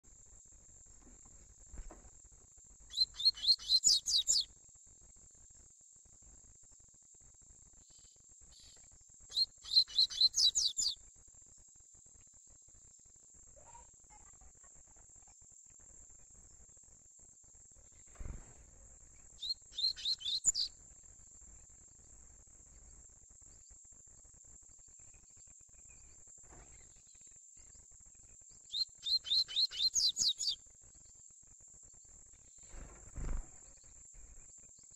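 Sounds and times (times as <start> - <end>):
bird singing high repeated notes: 2.9 - 4.5, 9.3 - 11.0, 19.4 - 20.7, 28.7 - 30.6.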